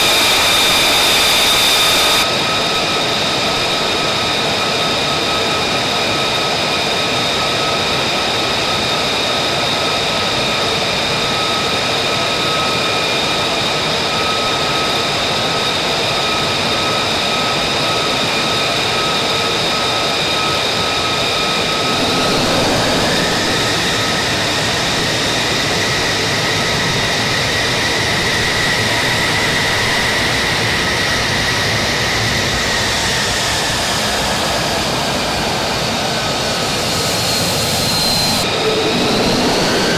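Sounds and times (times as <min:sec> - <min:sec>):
jet engine whine: 0:00.0 - 0:39.9
jet engine rushing noise: 0:20.1 - 0:27.0, 0:37.3 - 0:39.9.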